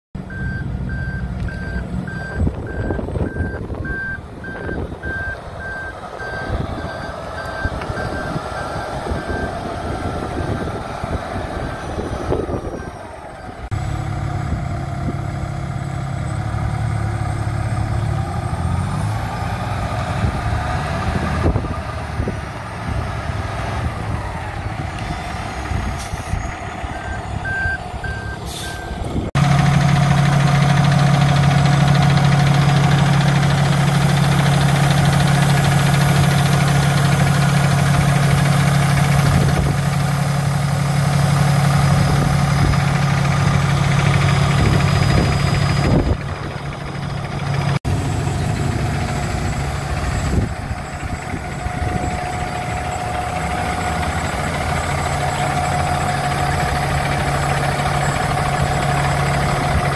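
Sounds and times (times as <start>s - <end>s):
diesel engine running: 0.2s - 59.9s
backup alarm beeping: 0.3s - 9.6s, 26.9s - 29.0s.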